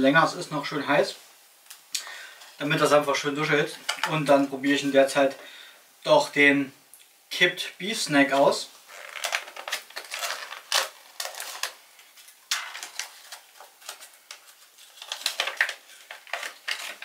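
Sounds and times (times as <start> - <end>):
plastic pouch tearing and crinkling: 8.9 - 17.0.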